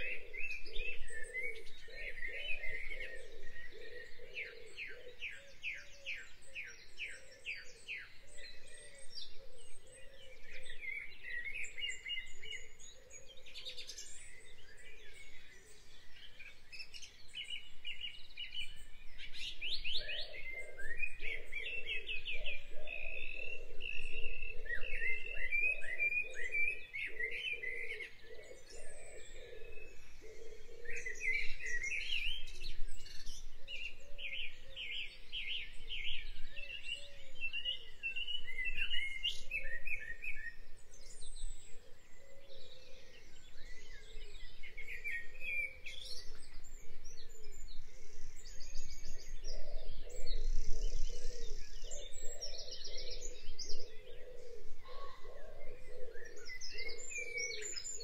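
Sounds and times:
birds chirping and trilling: 0.0 - 58.0
low pulsing bird call: 18.6 - 58.0.

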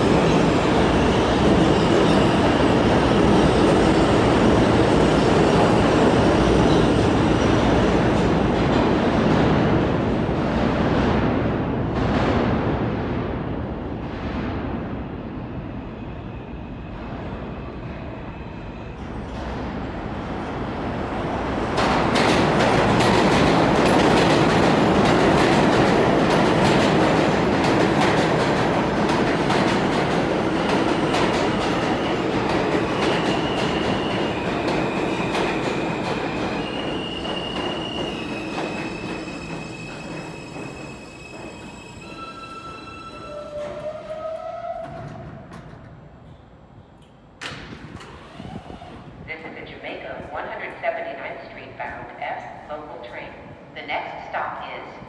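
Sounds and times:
subway train rumbling: 0.0 - 55.0
high wheel squeals: 36.6 - 44.8.

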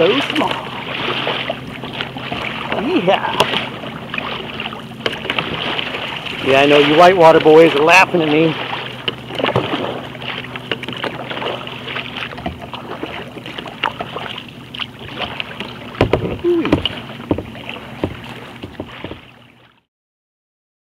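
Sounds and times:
water splashing against kayak hull: 0.0 - 19.9.

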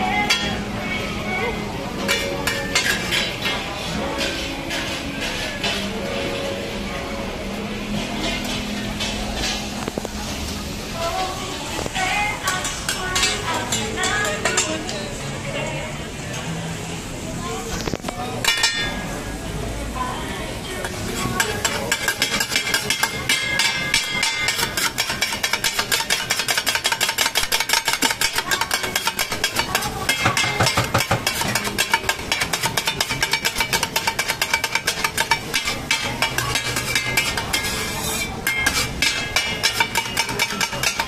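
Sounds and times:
metal spatulas scraping on griddle: 0.1 - 0.6, 2.0 - 6.4, 8.0 - 10.3, 11.8 - 15.2, 17.8 - 19.3, 20.8 - 41.0.

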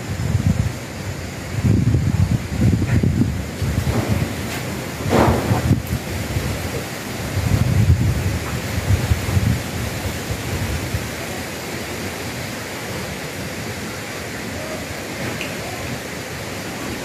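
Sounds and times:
steady rushing noise: 0.0 - 17.0
low thumps: 2.7 - 6.0.

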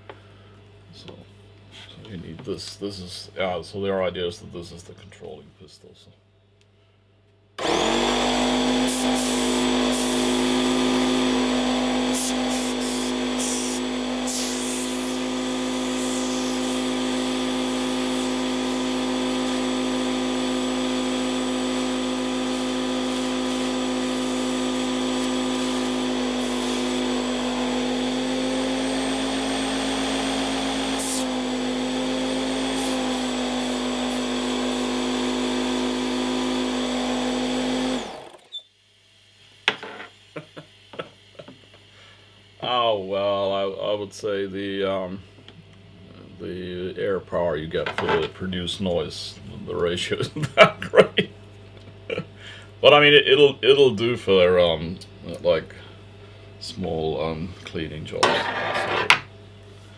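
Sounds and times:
air compressor humming: 7.6 - 38.8.

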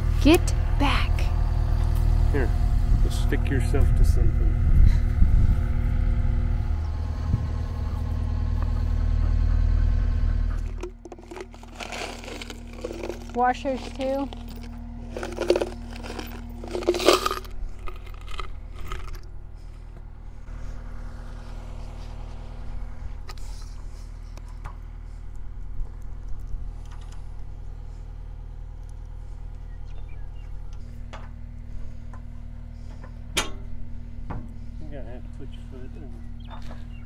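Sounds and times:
steady low hum: 0.0 - 37.0.

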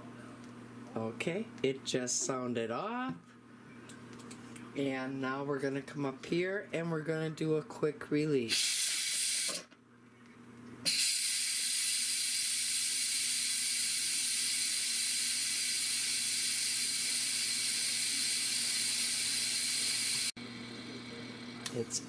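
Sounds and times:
pressure cooker steam hiss: 8.5 - 9.7, 10.9 - 21.6.

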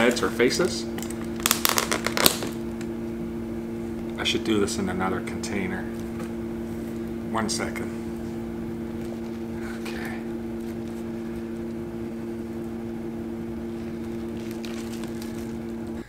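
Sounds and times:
steady electrical hum: 0.0 - 16.0
packing rustling and crinkling: 1.0 - 2.7, 13.8 - 15.8.

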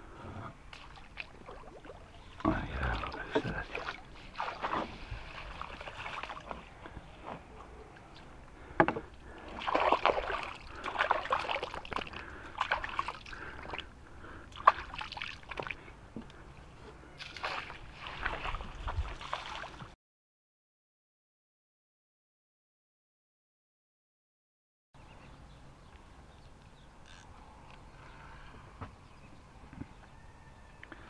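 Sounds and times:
water sloshing and splashing: 0.5 - 7.6, 8.6 - 16.0, 17.2 - 20.0.

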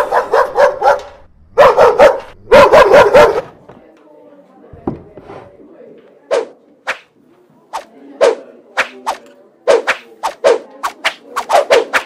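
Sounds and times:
sharp dog-like barks: 0.0 - 3.6.

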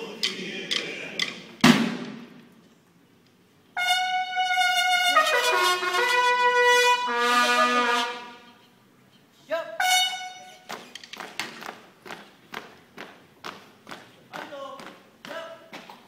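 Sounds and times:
bugles playing held notes: 3.8 - 8.6, 9.7 - 10.8.

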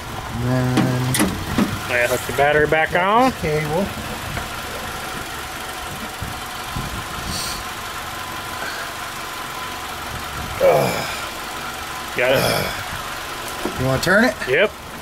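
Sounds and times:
engine-like drone: 0.0 - 15.0
person speaking word: 0.4 - 1.2.

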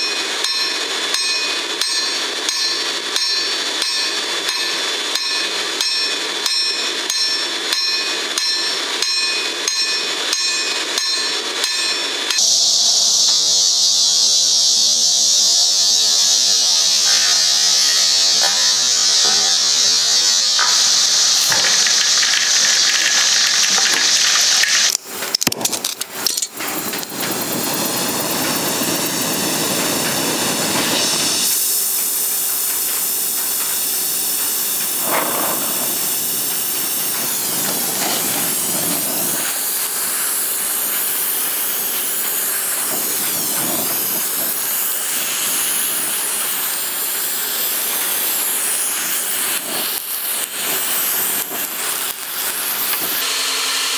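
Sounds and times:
hot blade quenching hiss: 0.0 - 53.6
torch flame hissing: 12.4 - 53.3.

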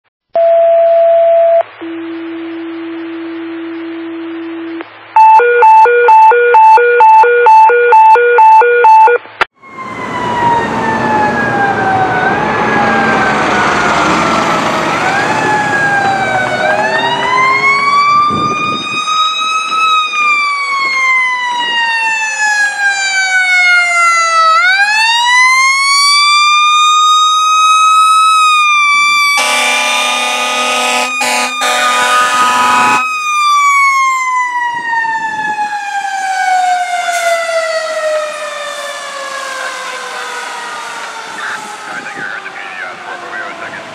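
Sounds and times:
paging tones and pulsed beeps: 0.4 - 9.2.

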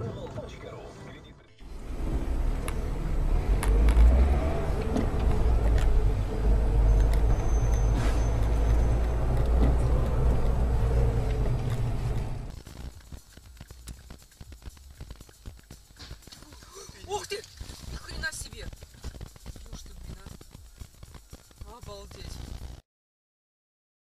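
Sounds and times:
road noise: 0.0 - 22.8
car engine rumble: 1.5 - 22.8
rapid crackle of clicks: 7.0 - 22.8.

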